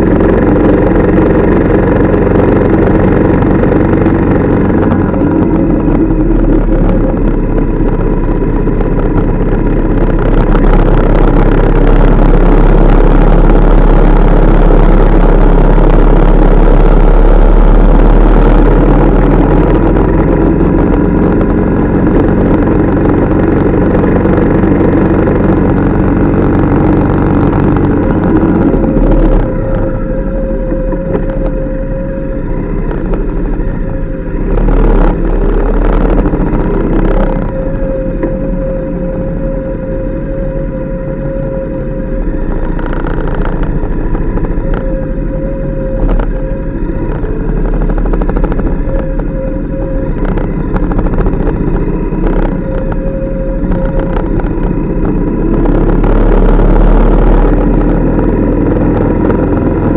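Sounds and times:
motorcycle engine running: 0.0 - 59.9
wind noise on microphone: 0.0 - 59.9.

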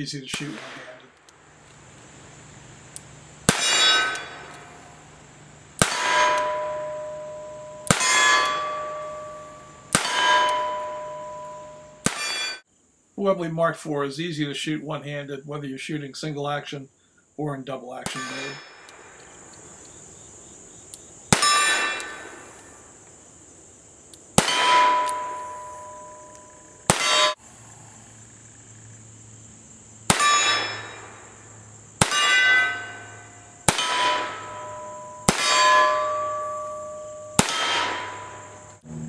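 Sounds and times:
revolver gunshots: 0.3 - 1.2, 3.4 - 5.2, 5.8 - 12.6, 18.0 - 19.2, 21.3 - 22.8, 24.4 - 26.2, 26.9 - 27.4, 32.0 - 36.7, 37.3 - 38.7
steel target clanging: 3.5 - 5.1, 5.8 - 12.6, 18.1 - 19.1, 21.4 - 22.6, 24.4 - 27.4, 30.1 - 31.3, 32.0 - 38.8.

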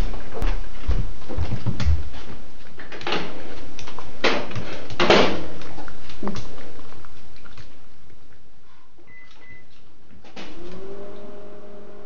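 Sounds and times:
dog chewing fruit: 3.4 - 9.9.

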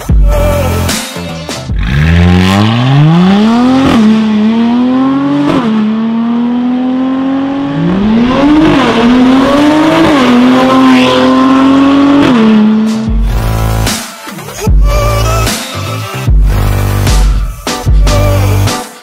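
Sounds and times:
car engine accelerating: 1.7 - 13.9.

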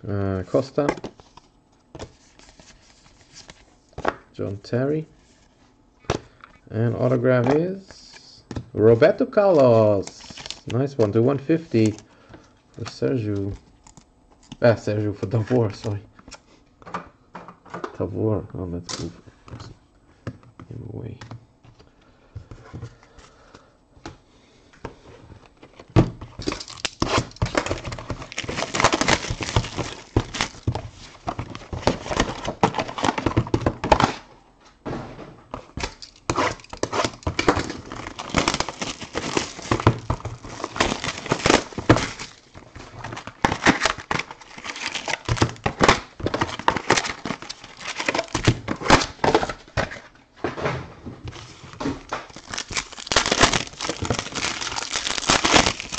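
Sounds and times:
wrapping and cardboard rustling: 25.0 - 34.3, 35.6 - 50.2, 51.2 - 55.9.

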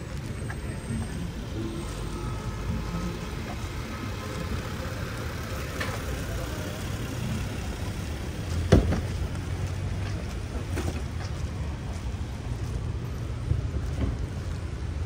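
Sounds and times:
street traffic rumble: 0.0 - 15.0.

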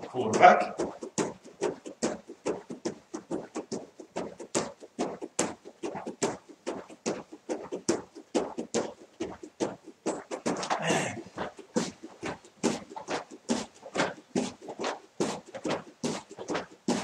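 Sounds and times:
bare feet bouncing on wooden floor: 0.0 - 17.0.

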